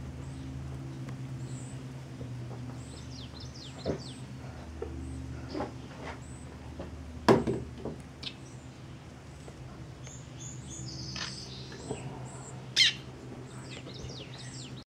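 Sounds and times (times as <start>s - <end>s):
wild birds chirping: 0.0s - 7.2s, 8.2s - 14.8s
steady low hum: 0.0s - 14.8s
sharp knocks: 7.3s - 8.0s.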